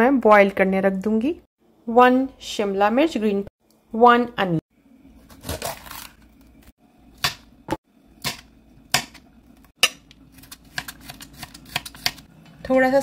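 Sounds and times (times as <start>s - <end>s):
knife cutting pepper: 9.8s - 12.3s.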